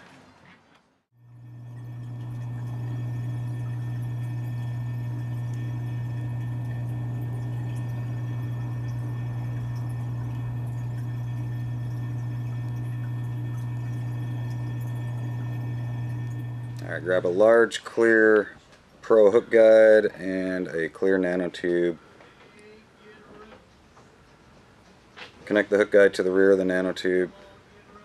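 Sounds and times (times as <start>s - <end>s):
low motor hum: 1.2s - 17.4s.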